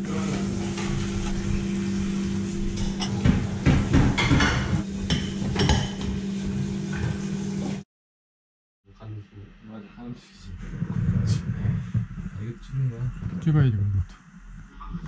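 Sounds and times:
dishes and cutlery clinking: 0:02.7 - 0:06.2
steady low hum: 0:08.9 - 0:15.0.

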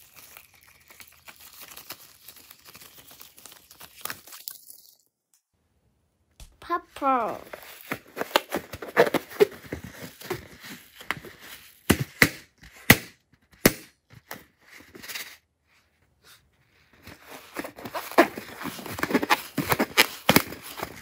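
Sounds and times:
balloon rubbery crackling: 0:06.4 - 0:13.9, 0:17.2 - 0:21.0
balloon sharp snaps: 0:11.9 - 0:14.0.

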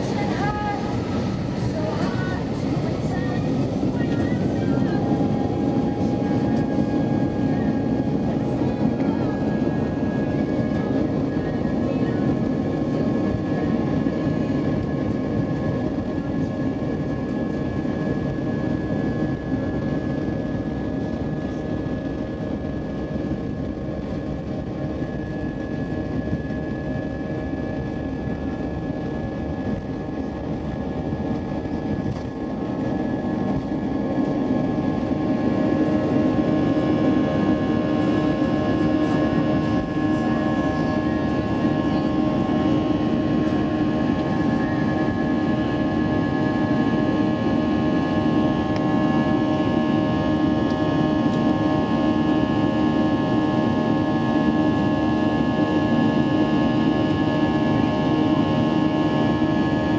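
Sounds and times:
jet engines whining and rumbling: 0:00.0 - 0:59.9.

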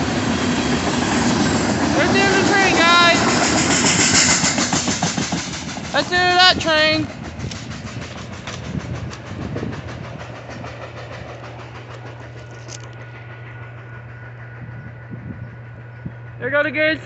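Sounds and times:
train wheels clicking over rail joints: 0:00.0 - 0:17.0.

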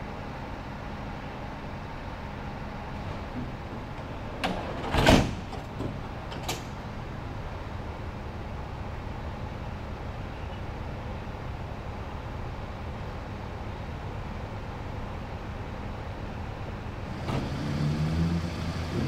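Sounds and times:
engine humming: 0:00.0 - 0:19.0
heavy clunk: 0:03.0 - 0:06.8.

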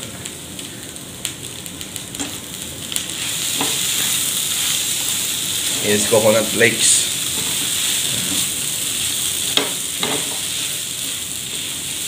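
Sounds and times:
vegetables sizzling in a pan: 0:00.0 - 0:12.0.

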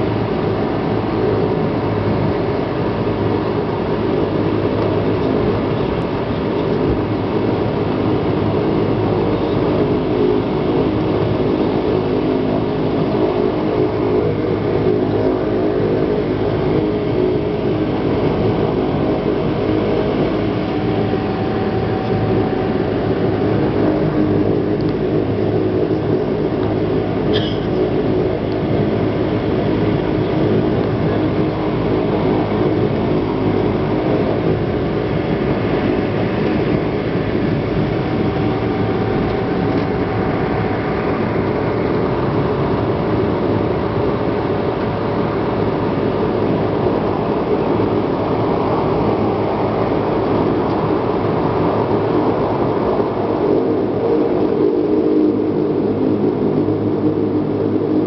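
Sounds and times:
turboprop engine drone: 0:00.0 - 0:58.0.

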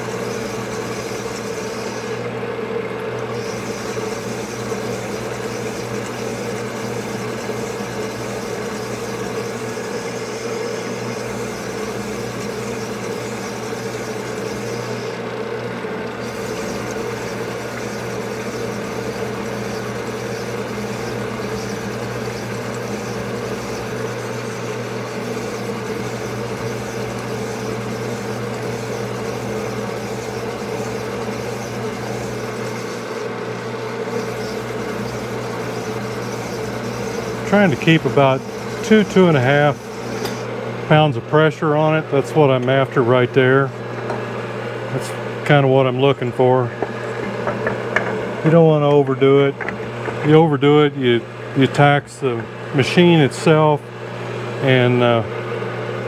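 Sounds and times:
hone motor humming: 0:00.0 - 0:56.0
stones grinding in cylinder: 0:03.4 - 0:15.2, 0:16.1 - 0:40.4.

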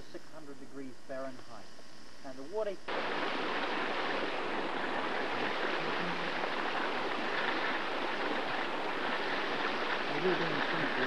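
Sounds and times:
hot spring water boiling and spurting: 0:02.4 - 0:11.0.

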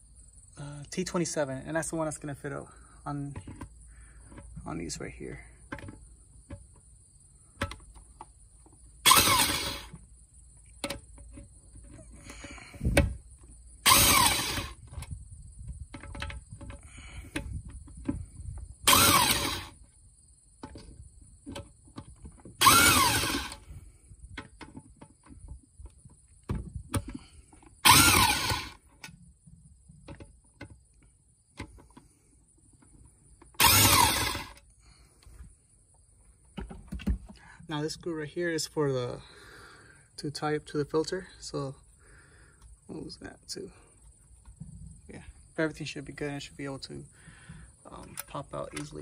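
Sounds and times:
power driver spinning screws: 0:09.0 - 0:10.0, 0:13.8 - 0:14.9, 0:18.8 - 0:19.8, 0:22.6 - 0:23.8, 0:27.8 - 0:28.8, 0:33.5 - 0:34.6.

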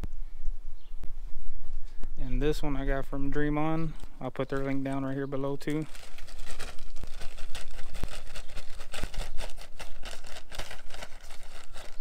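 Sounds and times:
plastic bag crinkling: 0:03.8 - 0:12.0.

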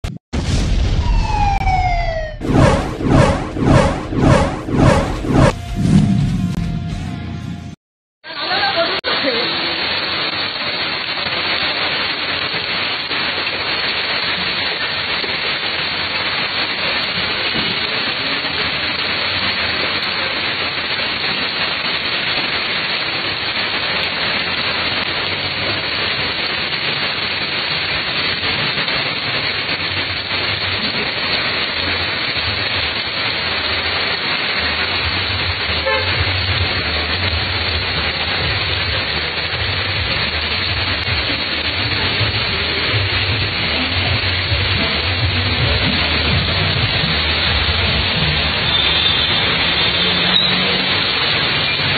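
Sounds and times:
heavy rain pouring: 0:00.0 - 0:51.9
vehicles driving through water: 0:23.2 - 0:51.9.

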